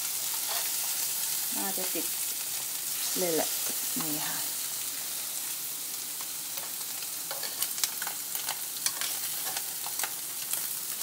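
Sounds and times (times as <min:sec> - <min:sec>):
chicken sizzling on a grill: 0:00.0 - 0:11.0
metal tongs on a grate: 0:00.3 - 0:01.0, 0:06.6 - 0:10.7.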